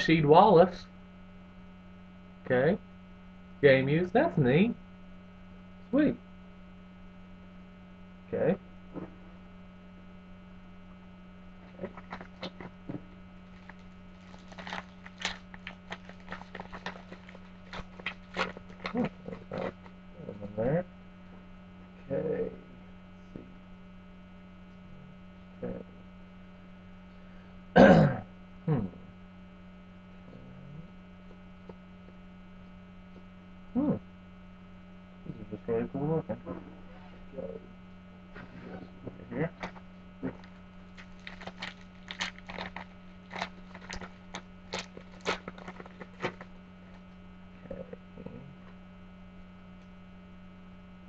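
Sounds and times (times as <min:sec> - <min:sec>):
electrical hum: 0:00.0 - 0:51.0
foil wrappers crinkling: 0:11.6 - 0:19.9, 0:39.6 - 0:47.1
man's short vocal sound: 0:33.8 - 0:34.0.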